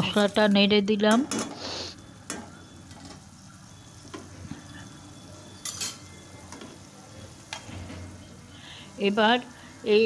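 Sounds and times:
gravy sizzling in a pan: 0.0s - 10.0s
spatula clinking on pan: 5.6s - 6.1s.

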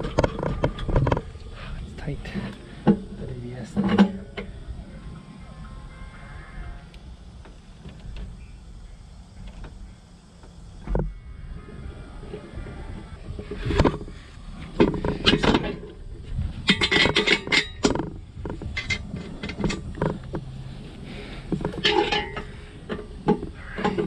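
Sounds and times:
tools and metal parts clanking: 0.0s - 4.5s, 13.3s - 20.6s, 21.4s - 24.0s.

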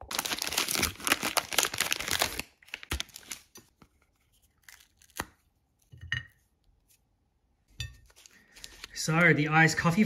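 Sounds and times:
foil wrapper crinkling and tearing: 0.0s - 5.5s
chocolate snapping: 4.6s - 5.5s.

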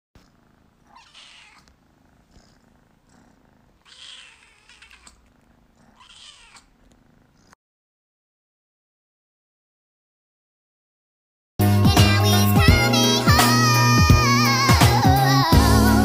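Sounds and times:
kitten meowing: 0.8s - 1.7s, 3.8s - 5.2s, 5.9s - 6.8s.

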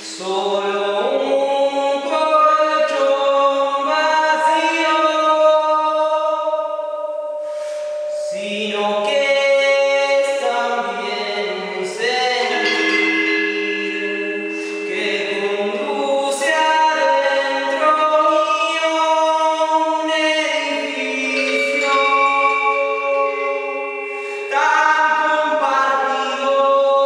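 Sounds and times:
person singing slow melody: 0.0s - 27.0s
metallophone struck with mallets: 7.3s - 8.7s, 11.3s - 26.5s.

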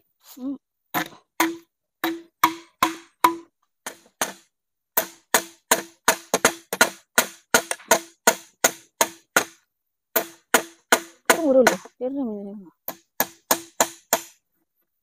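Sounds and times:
hammer driving nails: 1.0s - 11.9s, 12.9s - 14.4s.

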